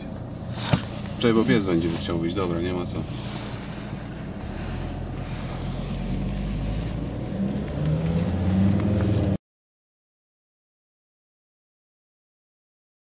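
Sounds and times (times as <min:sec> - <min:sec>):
car engine accelerating: 0:00.0 - 0:09.4.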